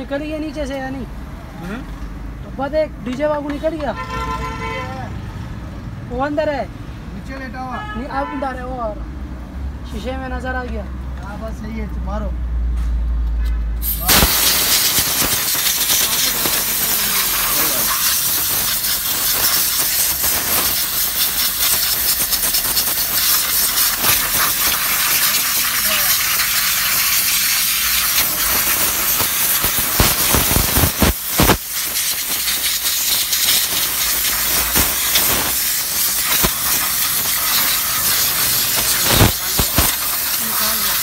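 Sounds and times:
spray gun hissing: 13.8 - 41.0.

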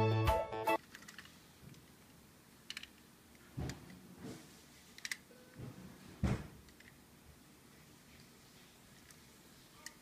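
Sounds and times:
toy cars clicking: 0.8 - 1.4, 2.6 - 3.0, 5.0 - 5.2.

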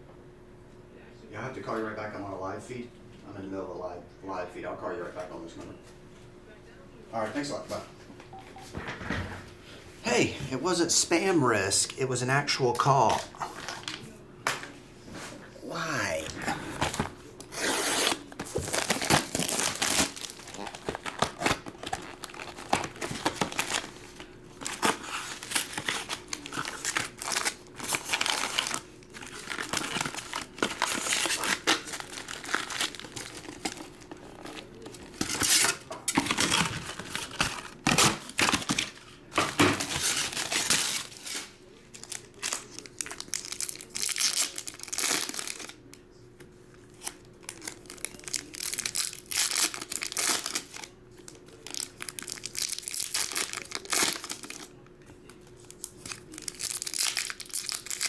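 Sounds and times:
foil wrappers crinkling and tearing: 15.8 - 46.0, 46.8 - 58.0.

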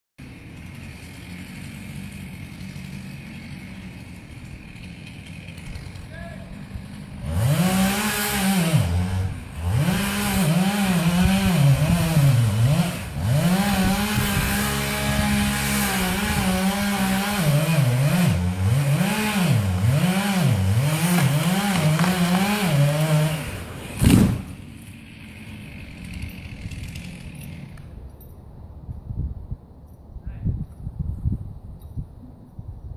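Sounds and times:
chainsaw cutting a tree: 0.2 - 28.0
heavy thud of wood falling: 21.0 - 23.0, 23.9 - 24.6.

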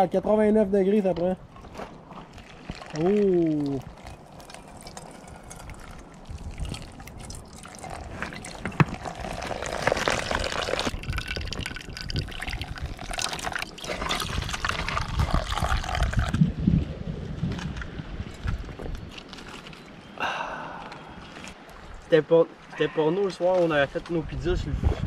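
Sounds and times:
coffee pouring between metal cups: 2.3 - 16.4
water pouring into coffee filter: 2.5 - 16.4.

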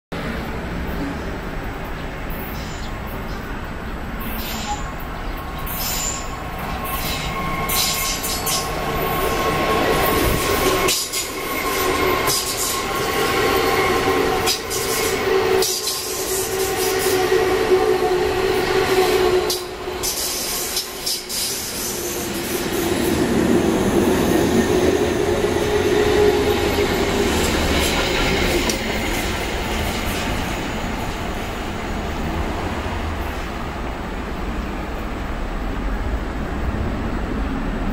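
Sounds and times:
train rumble: 0.2 - 37.9
train wheels clicking over joints: 9.9 - 13.1, 26.6 - 30.6.

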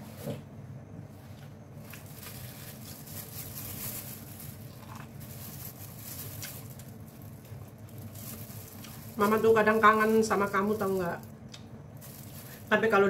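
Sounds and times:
low background hum: 0.0 - 13.0
plastic glove crinkling: 1.8 - 13.0
chewing corn: 4.6 - 5.2.

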